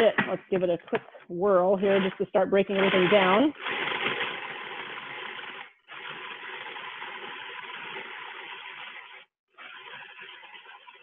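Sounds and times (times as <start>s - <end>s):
food processor chopping: 2.7s - 11.0s.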